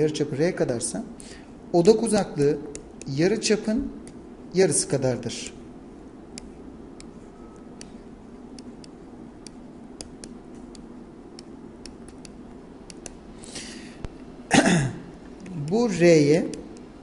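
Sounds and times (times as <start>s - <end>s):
breath: 1.2s - 1.6s, 13.4s - 14.1s
stylus ticking on graphics tablet: 6.3s - 7.2s, 7.8s - 13.2s.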